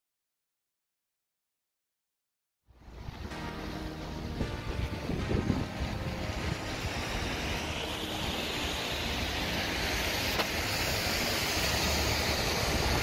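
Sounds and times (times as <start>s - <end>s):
road traffic: 2.7s - 13.0s
wind rushing: 2.8s - 13.0s.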